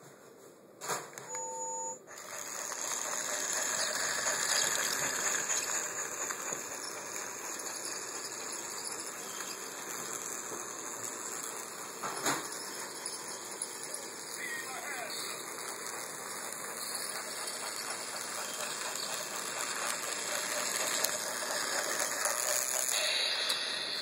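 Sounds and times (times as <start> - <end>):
short electronic tone: 1.3 - 2.0
toy train motor whir: 1.4 - 24.0.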